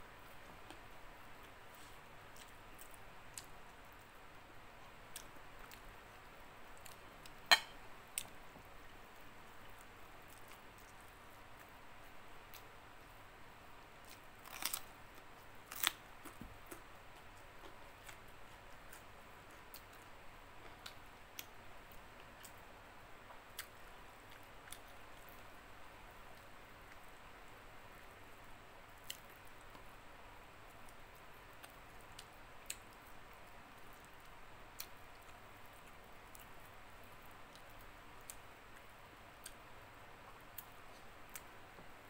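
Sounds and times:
crunchy bite: 14.4 - 14.9.

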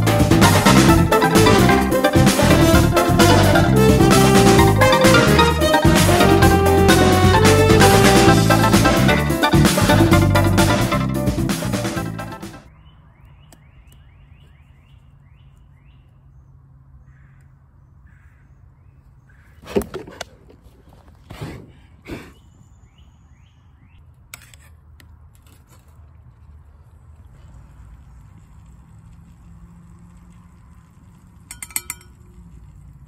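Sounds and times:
bird chirping: 12.6 - 19.6, 22.2 - 24.1.

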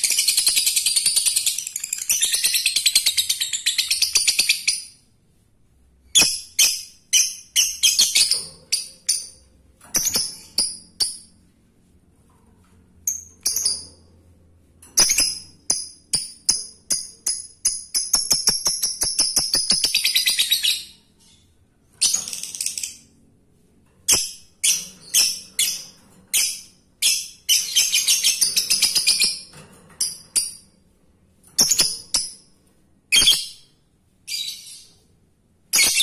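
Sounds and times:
sharp bird chirps: 33.2 - 33.7.

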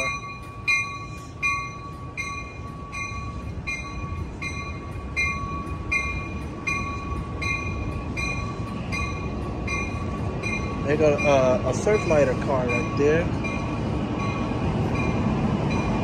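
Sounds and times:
bell ringing: 0.0 - 16.0
train rumbling: 0.0 - 16.0.

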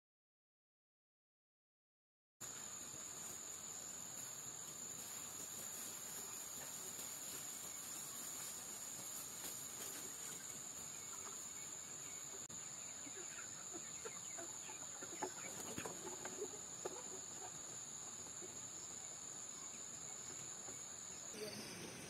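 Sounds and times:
high insect drone: 2.4 - 22.0
hens clucking: 5.1 - 18.6.

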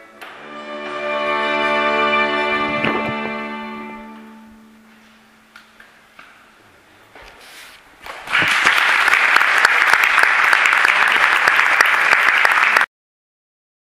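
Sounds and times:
audience applauding: 8.1 - 12.9.

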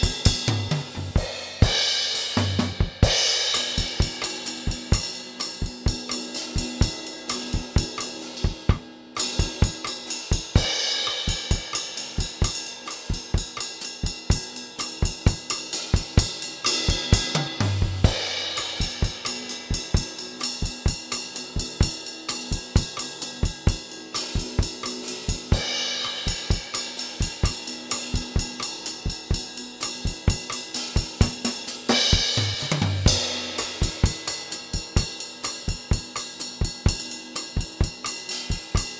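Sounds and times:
cymbal crashes: 0.0 - 22.5
drum kit groove: 0.0 - 38.9.

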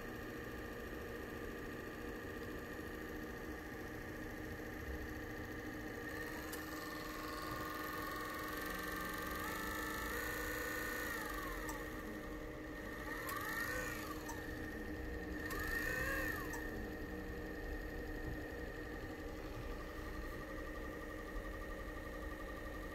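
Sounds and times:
servo motor whine: 6.2 - 18.4.

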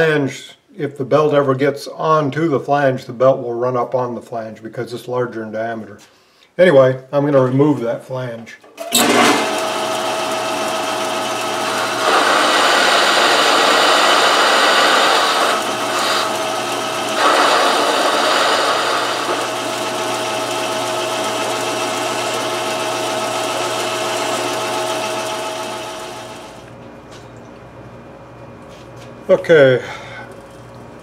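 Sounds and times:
metal lathe motor whining: 8.8 - 26.7
lathe cutting metal: 8.9 - 26.7.

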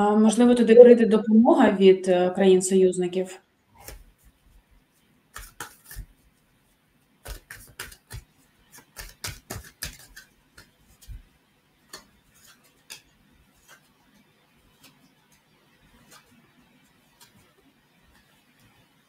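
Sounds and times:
cards being shuffled: 3.8 - 18.9.

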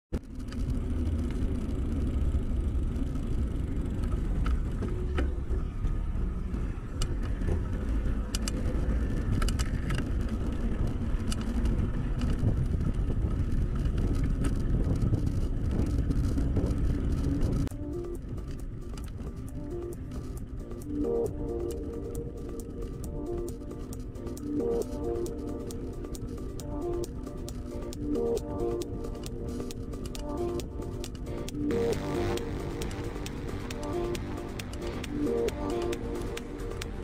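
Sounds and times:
bicycle tyre rumble on asphalt: 0.2 - 20.9
bike clicks and rattles: 0.2 - 37.0
wind rushing over microphone: 7.1 - 20.1.

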